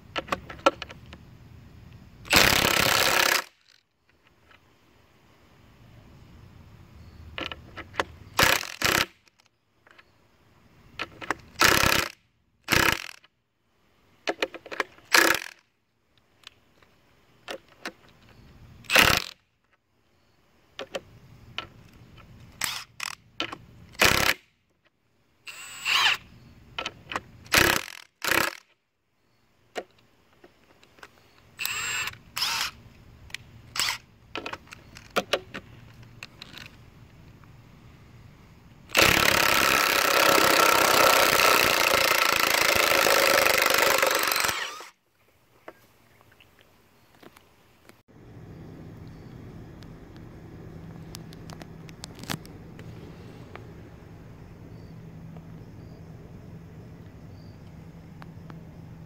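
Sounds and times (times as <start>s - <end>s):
impact wrench bursts: 2.3s - 3.8s, 8.4s - 9.2s, 11.6s - 13.2s, 15.1s - 15.6s, 27.5s - 28.7s, 31.6s - 32.8s, 38.9s - 45.0s.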